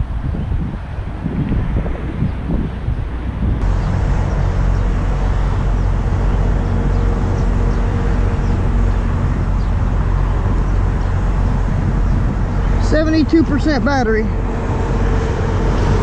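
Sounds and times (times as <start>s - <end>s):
road traffic: 0.0s - 16.0s
wind buffeting microphone: 0.0s - 16.0s.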